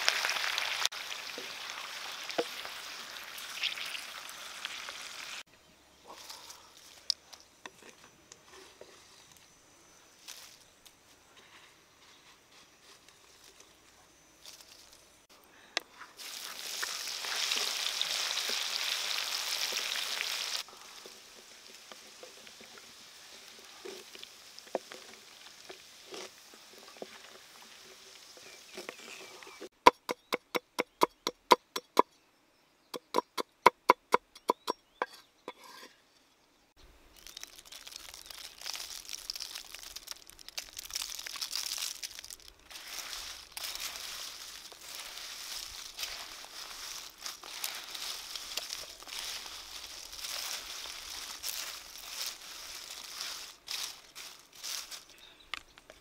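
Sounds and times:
rustling in bamboo basket: 10.2 - 13.8, 15.9 - 29.7, 37.2 - 55.2
leaves crinkling: 10.2 - 15.3, 16.2 - 29.5, 37.0 - 56.0.

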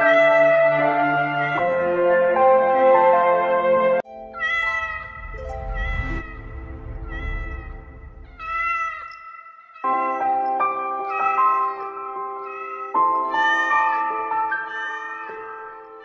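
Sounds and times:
cat meowing: 4.4 - 9.2.

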